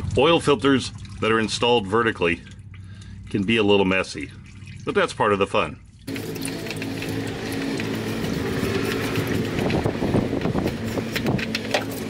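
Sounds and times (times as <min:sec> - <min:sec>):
mechanical hum: 0:05.9 - 0:12.0.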